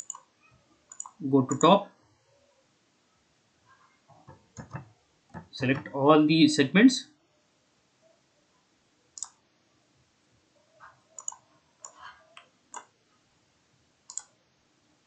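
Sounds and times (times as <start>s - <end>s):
mouse buttons clicking: 0.0s - 0.3s, 0.9s - 1.8s, 9.2s - 9.4s, 11.1s - 12.9s, 14.1s - 14.4s.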